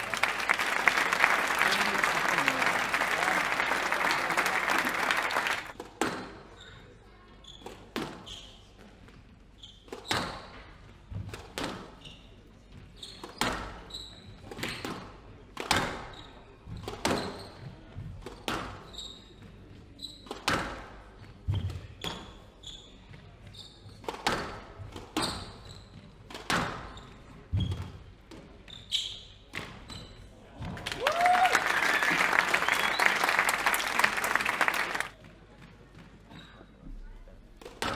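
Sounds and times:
squash ball hitting rackets and walls: 0:05.7 - 0:06.4, 0:07.6 - 0:08.5, 0:09.8 - 0:19.5, 0:20.1 - 0:22.4, 0:23.1 - 0:28.8, 0:29.5 - 0:30.8, 0:37.6 - 0:37.9.

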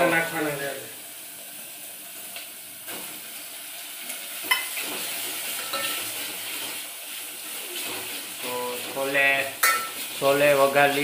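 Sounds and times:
masala sizzling in a metal pot: 0:00.0 - 0:11.0
metal spoon clinking on pot: 0:05.6 - 0:06.0, 0:09.6 - 0:10.0.

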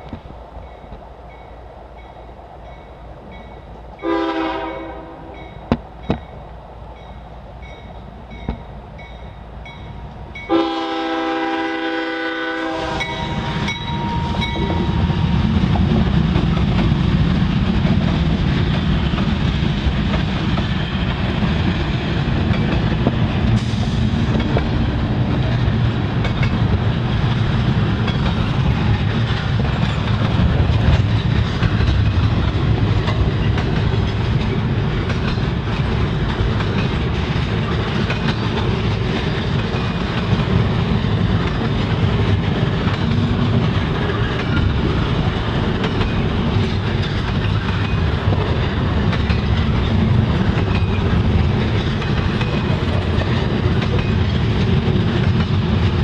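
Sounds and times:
train cars rumbling and clacking: 0:00.0 - 0:56.0
crossing bell dinging: 0:00.6 - 0:06.4, 0:13.0 - 0:15.1
train horn blasts: 0:04.0 - 0:05.6, 0:10.5 - 0:15.1.

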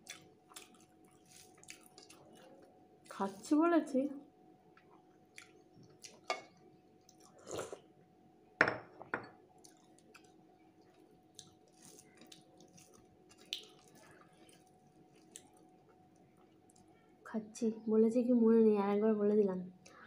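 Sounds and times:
chewing: 0:00.0 - 0:02.8, 0:04.8 - 0:07.8, 0:09.6 - 0:17.0
faint steady hum: 0:00.0 - 0:20.0.

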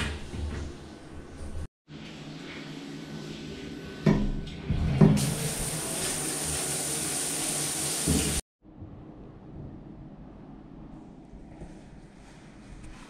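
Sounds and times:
shower water spraying: 0:05.0 - 0:08.4.

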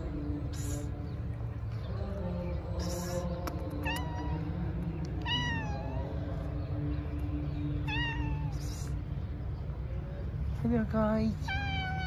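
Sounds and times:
cat meowing: 0:03.8 - 0:04.5, 0:05.2 - 0:06.1, 0:07.8 - 0:09.0, 0:11.4 - 0:12.0.

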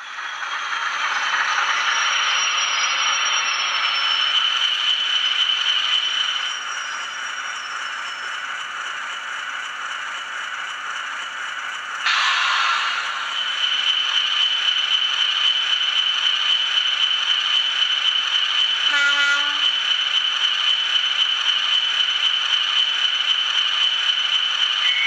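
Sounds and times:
steady high whistle: 0:00.0 - 0:08.7, 0:12.0 - 0:15.0, 0:24.8 - 0:25.0
model train diesel engine sound: 0:00.0 - 0:25.0.

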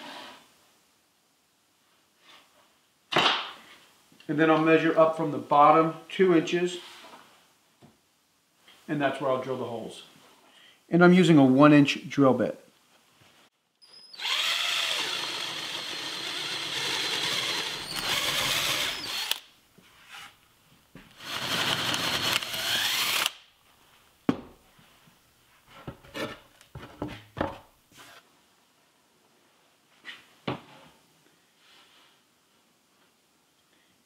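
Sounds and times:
power drill boring wood: 0:13.9 - 0:19.4, 0:21.2 - 0:23.4.

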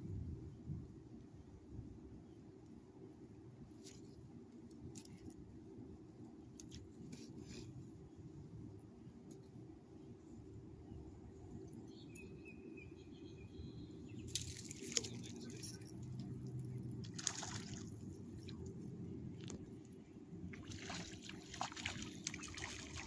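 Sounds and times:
fish splashing at water surface: 0:17.0 - 0:18.0, 0:20.5 - 0:23.0.

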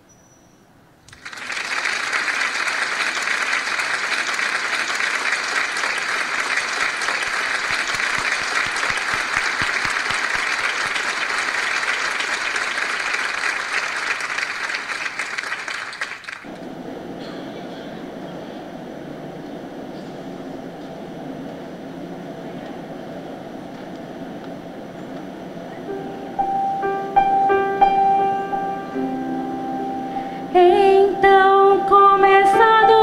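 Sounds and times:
audience applauding: 0:01.1 - 0:16.8.

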